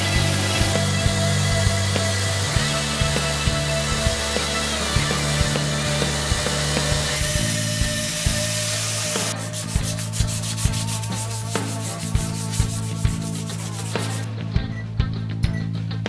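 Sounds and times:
belt grinder grinding steel: 0.0s - 14.3s
background music with beat: 0.0s - 16.0s.

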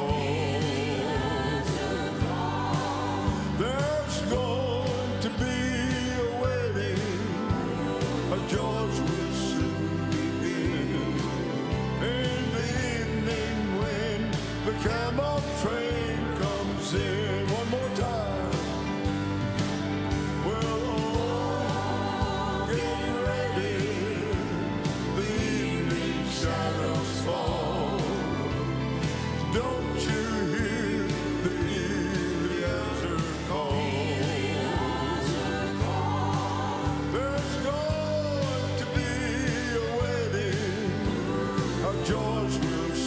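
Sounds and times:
bass line: 0.0s - 43.0s
country gospel band music: 0.0s - 43.0s
piano: 0.0s - 43.0s
singers holding long notes: 0.0s - 43.0s.

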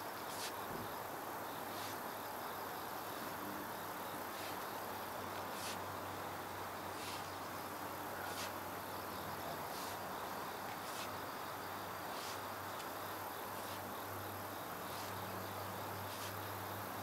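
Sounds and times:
insects chirping: 0.0s - 17.0s
hoe scraping through soil: 7.0s - 7.3s, 8.2s - 8.6s, 9.7s - 10.0s.

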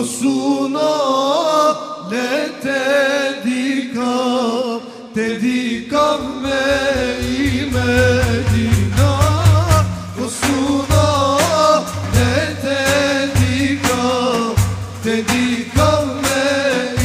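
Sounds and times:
man singing a hymn: 0.0s - 17.0s
frame drums beating: 6.2s - 17.0s.

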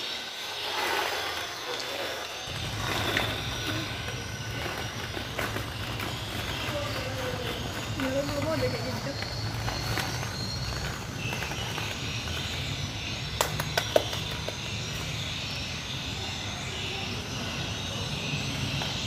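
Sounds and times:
plastic balls knocking together: 13.4s - 14.6s.

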